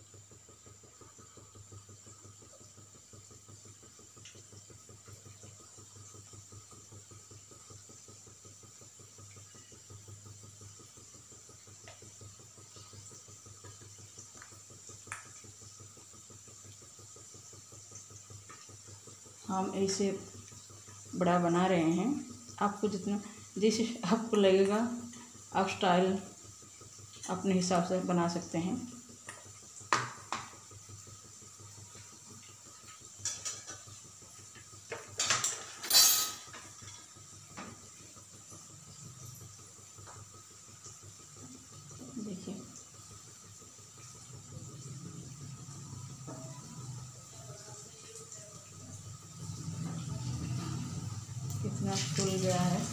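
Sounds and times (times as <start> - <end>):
food deep-frying in hot oil: 0.0 - 52.9
utensils and dishes clinking: 35.1 - 37.0
low steady hum: 37.8 - 52.9.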